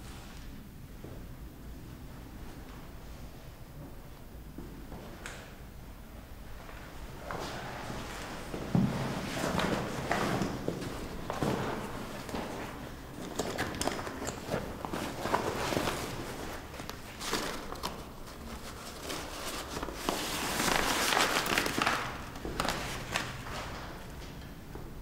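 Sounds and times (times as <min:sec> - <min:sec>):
small knocks and shuffles: 0:06.6 - 0:25.0
cloth bag rustling: 0:07.5 - 0:23.6.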